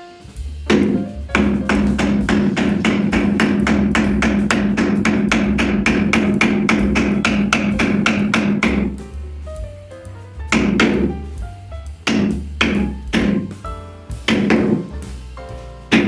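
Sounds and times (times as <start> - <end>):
hammer striking chisel into wood: 0.7 - 9.0, 10.5 - 11.2, 12.0 - 13.5, 14.3 - 15.0.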